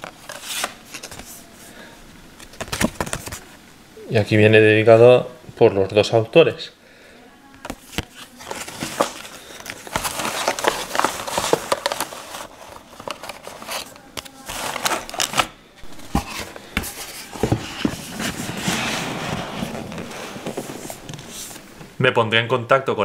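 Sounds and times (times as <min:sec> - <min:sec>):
cloth bag rustling: 0:08.3 - 0:21.8.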